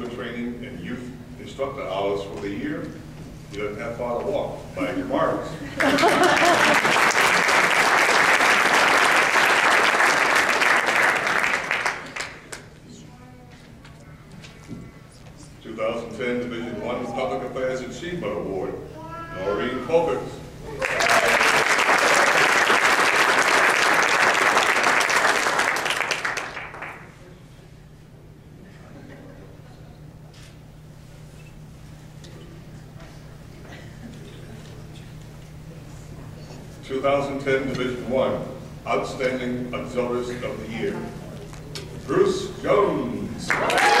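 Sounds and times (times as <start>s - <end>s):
audience applauding: 5.8s - 12.7s, 20.7s - 27.2s, 43.5s - 44.0s.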